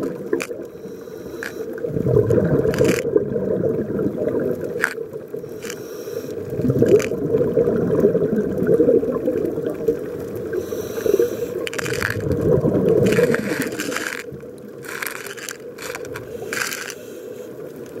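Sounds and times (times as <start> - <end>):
exhaled bubbles rumbling underwater: 0.0 - 5.6, 6.4 - 14.9
regulator hisses: 5.5 - 6.4, 10.6 - 11.9.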